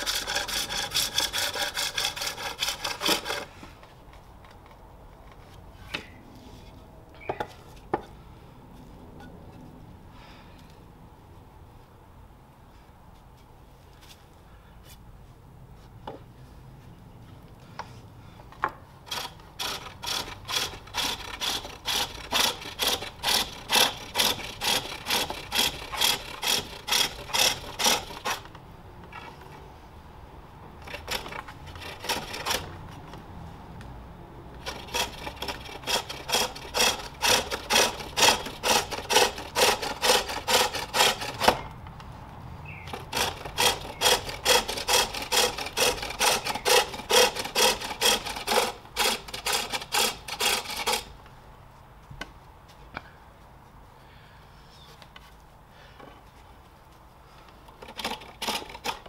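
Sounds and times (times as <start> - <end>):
lathe tool scraping wood: 0.0 - 3.8, 19.0 - 28.5, 30.8 - 33.0, 34.6 - 41.7, 42.8 - 51.1.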